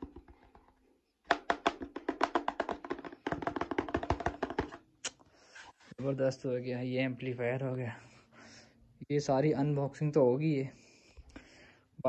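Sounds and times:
hand tapping plastic speaker grille: 0.0s - 4.9s.

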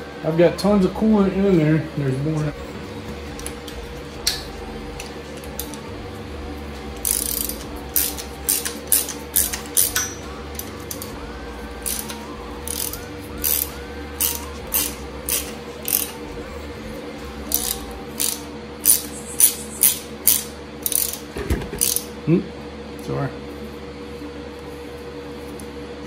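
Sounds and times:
hand ratchet clicking: 7.0s - 11.1s, 11.8s - 16.2s, 17.5s - 21.2s, 21.8s - 22.1s.

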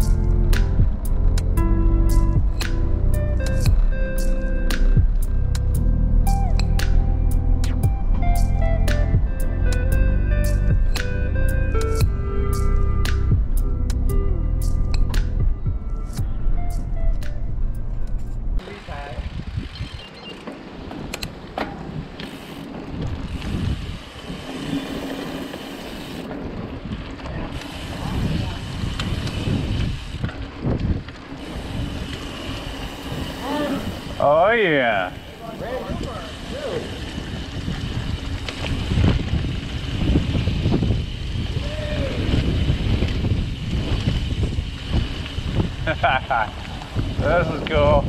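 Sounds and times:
wind rushing over microphone: 14.9s - 20.2s, 21.0s - 25.2s, 26.0s - 48.0s
bike tyre rumble on dirt: 18.3s - 48.0s
bike rattling and knocking: 19.0s - 48.0s.

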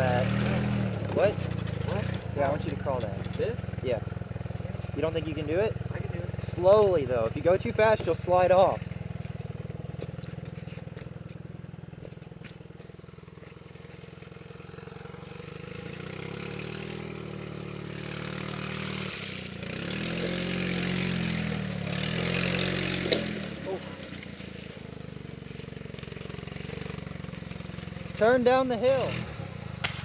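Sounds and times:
golf cart engine revving: 0.0s - 30.0s.

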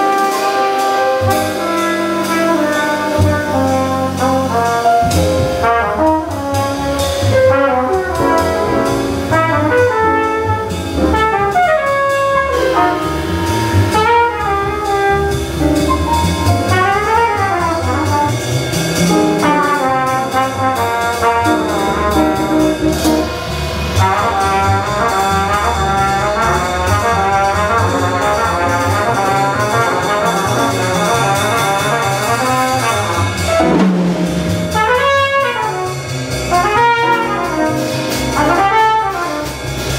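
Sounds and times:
drum kit: 0.0s - 39.9s
piano: 0.0s - 39.9s
trumpet solo: 0.0s - 39.9s
upright bass plucked: 7.2s - 35.2s.

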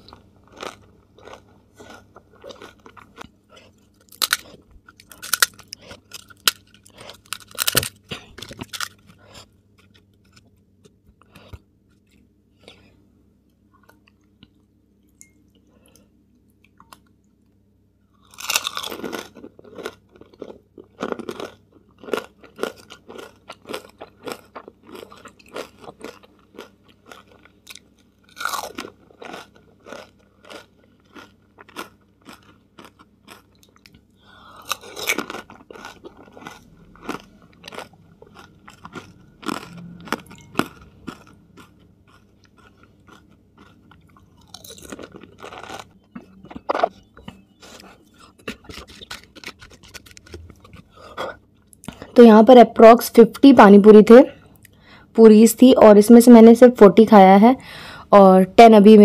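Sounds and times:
crisp shell cracking bites: 4.0s - 9.2s.

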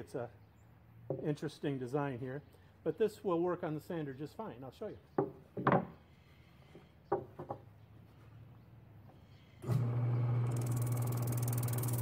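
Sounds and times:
plywood knocking on table: 5.2s - 5.9s
drum sander motor humming: 9.6s - 12.0s.

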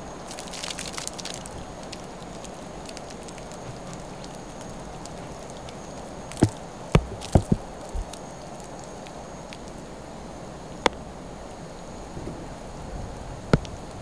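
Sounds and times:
paint dripping and splattering: 0.2s - 9.8s.

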